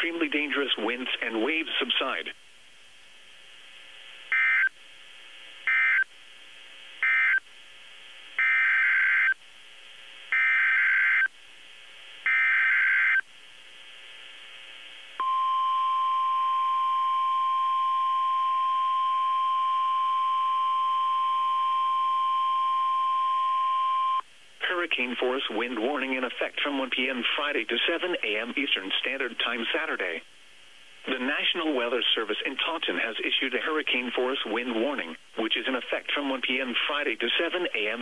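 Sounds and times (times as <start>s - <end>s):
steady warning alarm tone: 4.3s - 4.7s, 5.7s - 6.0s, 7.0s - 7.4s, 8.4s - 9.4s, 10.3s - 11.3s, 12.3s - 13.2s.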